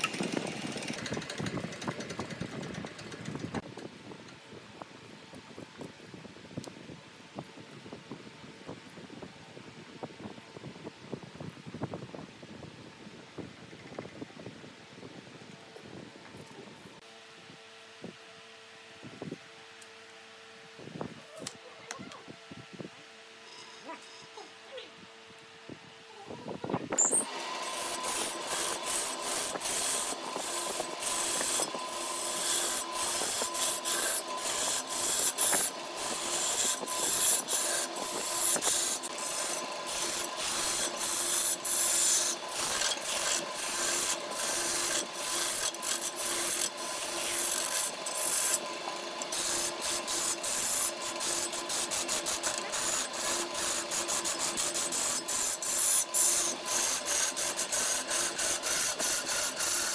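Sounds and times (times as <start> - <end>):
lathe tool scraping wood: 0.0 - 3.6, 27.0 - 59.9.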